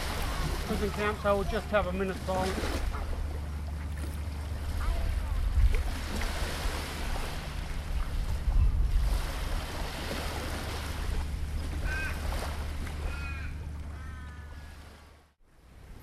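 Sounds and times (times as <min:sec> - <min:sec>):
gentle surf on sandy beach: 0:00.0 - 0:03.1, 0:04.4 - 0:13.2
wind rumbling on microphone: 0:04.3 - 0:14.4
bird calling: 0:11.7 - 0:15.0.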